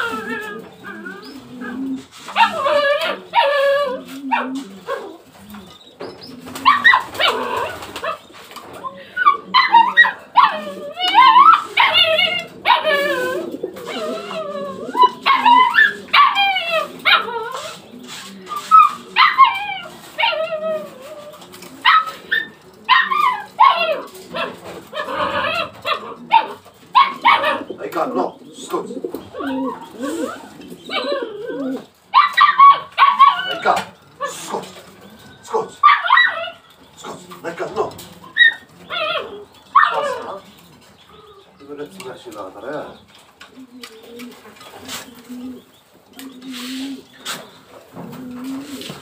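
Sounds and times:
animal calling in loud cries: 0:00.0 - 0:05.2, 0:09.2 - 0:17.9, 0:18.5 - 0:27.8, 0:29.3 - 0:34.7
pigeons cooing: 0:00.0 - 0:49.0.

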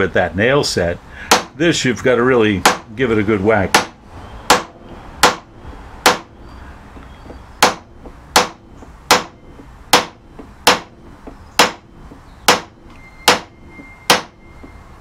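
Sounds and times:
hammer striking metal punch: 0:01.3 - 0:01.6, 0:03.7 - 0:06.4, 0:07.2 - 0:14.8.

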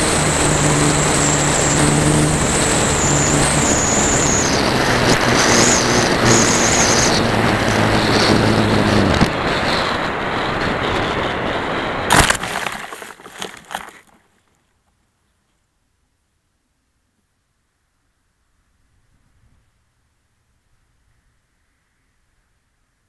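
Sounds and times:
wind rush: 0:00.0 - 0:13.9
electric motor and propeller whining: 0:00.0 - 0:14.2
glider crashing into tree: 0:12.1 - 0:14.2
branches cracking and rustling: 0:12.1 - 0:14.3.

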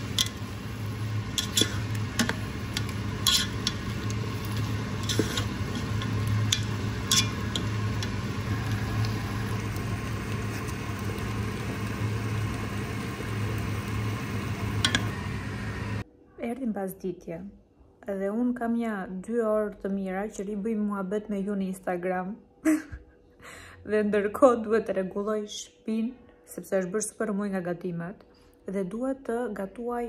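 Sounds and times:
food sizzling in a pot: 0:00.0 - 0:16.0
low hum: 0:00.0 - 0:16.1
spoon scraping a pot: 0:01.2 - 0:08.5.

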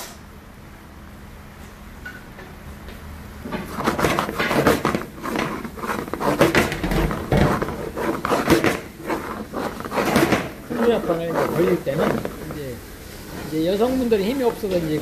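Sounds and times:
food stirred in frying pan: 0:03.5 - 0:15.0.

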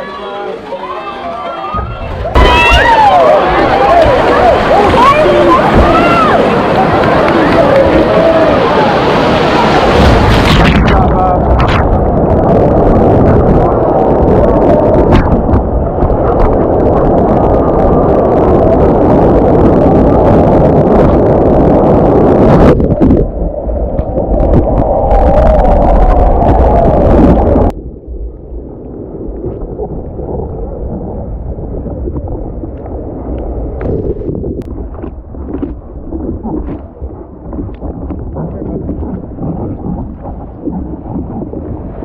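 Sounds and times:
rushing whitewater: 0:00.0 - 0:11.8
wind buffeting microphone: 0:01.7 - 0:42.0.

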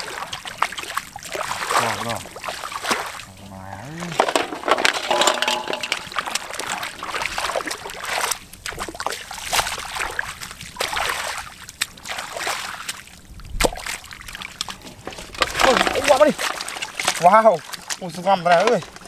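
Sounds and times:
hands splashing in muddy water: 0:00.0 - 0:03.3, 0:05.0 - 0:14.6.

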